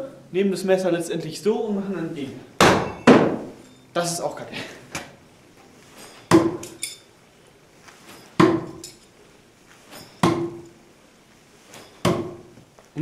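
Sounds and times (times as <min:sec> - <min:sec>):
knives striking wooden target: 0:02.6 - 0:03.5, 0:06.3 - 0:06.8, 0:08.4 - 0:08.9, 0:09.9 - 0:10.7, 0:12.0 - 0:12.5
light metal clinks: 0:02.9 - 0:04.5, 0:06.0 - 0:07.1, 0:08.0 - 0:09.2, 0:09.9 - 0:10.8.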